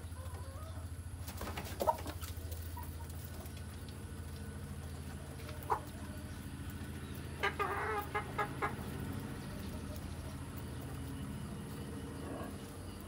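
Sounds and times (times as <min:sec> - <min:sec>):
chicken calling: 0:00.0 - 0:01.0, 0:07.2 - 0:10.5
chickens clucking: 0:00.0 - 0:13.0
steady low hum: 0:00.0 - 0:13.0.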